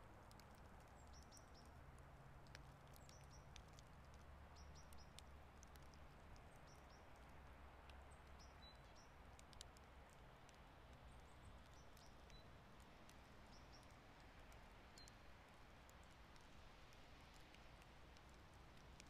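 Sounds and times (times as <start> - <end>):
light ticks: 0.1 - 19.0
small bird chirps: 1.0 - 1.8, 2.8 - 3.8, 4.5 - 5.2, 8.2 - 9.2, 11.1 - 12.6, 13.4 - 14.0.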